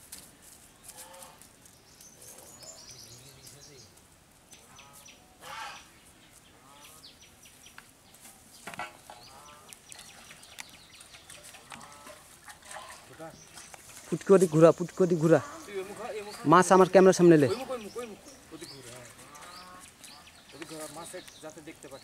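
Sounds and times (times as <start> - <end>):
faint bird calls: 2.0 - 13.9, 14.8 - 16.6, 17.5 - 22.0
chickens clucking: 8.7 - 21.3.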